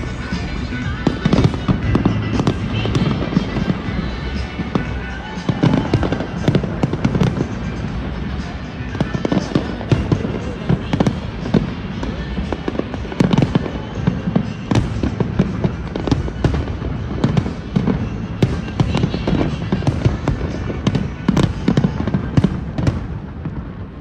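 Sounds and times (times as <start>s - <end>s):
fireworks bangs and crackles: 0.0s - 24.0s.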